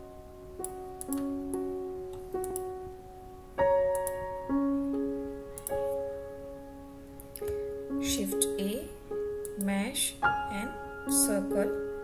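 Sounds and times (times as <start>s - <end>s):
slow piano music: 0.0s - 12.0s.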